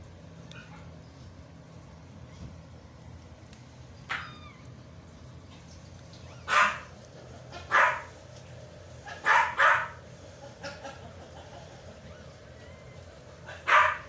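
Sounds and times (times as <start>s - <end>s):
dog barking: 6.5s - 6.9s, 7.6s - 8.1s, 9.1s - 10.0s, 13.5s - 14.0s.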